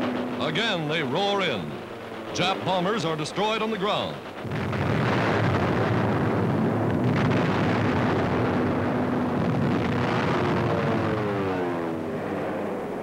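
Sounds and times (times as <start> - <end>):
bomb explosions and diving aircraft: 0.0 - 13.0
sharp crack: 0.0 - 13.0.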